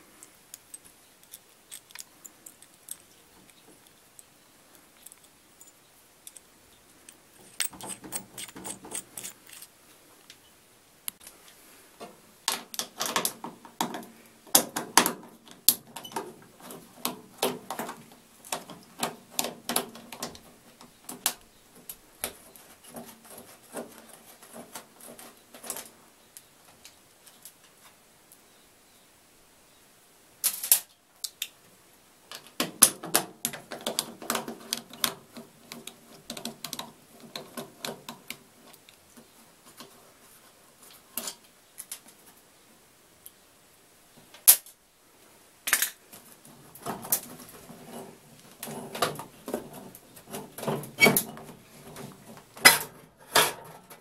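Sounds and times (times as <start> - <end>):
screwdriver clicking and scraping: 0.5 - 4.3, 7.1 - 9.7.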